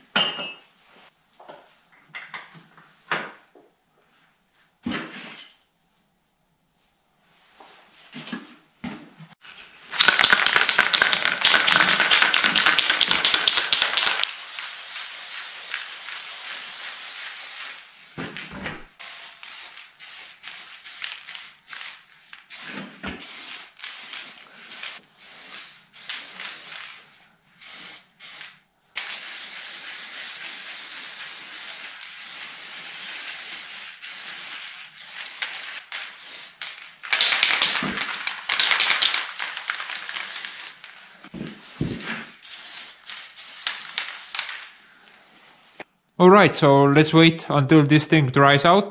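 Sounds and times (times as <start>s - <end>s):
spray paint can hissing: 10.0s - 18.0s, 19.0s - 27.0s, 27.6s - 41.0s, 42.4s - 44.7s.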